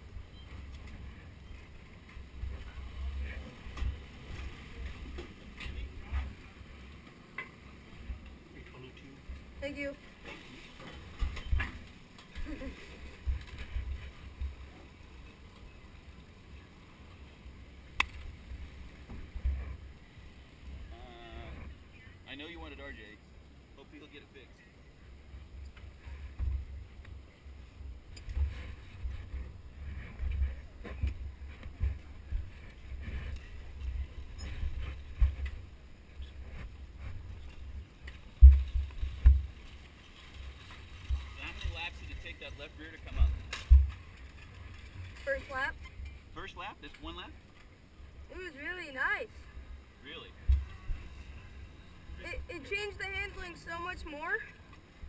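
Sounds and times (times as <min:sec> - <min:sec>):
go-kart rolling on concrete: 0:28.2 - 0:55.0.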